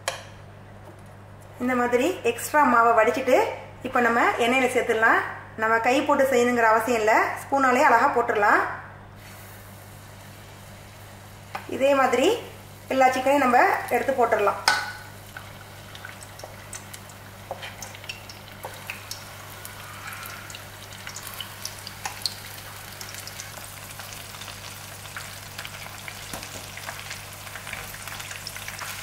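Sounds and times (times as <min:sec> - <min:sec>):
chicken deep-frying in oil: 0:09.6 - 0:29.0.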